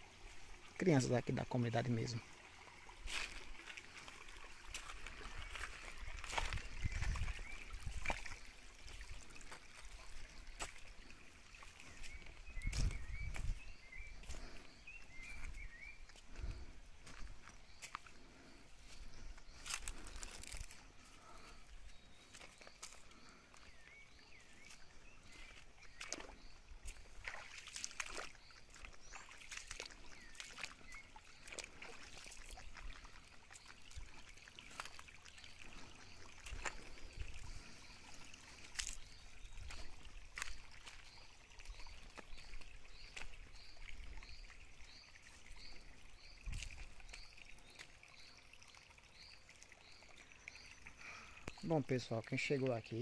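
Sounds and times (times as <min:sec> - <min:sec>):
high wildlife hum: 0:00.0 - 0:53.0
stream trickling over stones: 0:00.0 - 0:53.0.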